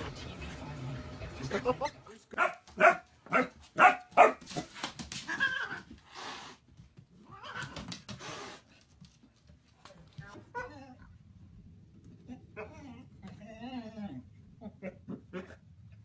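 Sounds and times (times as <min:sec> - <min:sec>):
puppy barking: 0:02.3 - 0:04.7.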